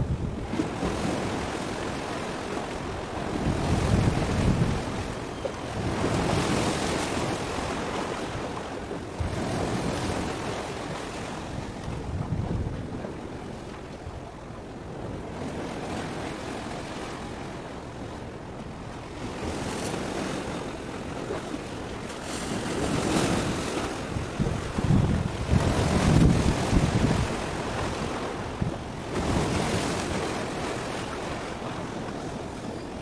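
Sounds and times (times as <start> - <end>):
sea waves washing in: 0.0 - 33.0
wind buffeting microphone: 0.0 - 33.0.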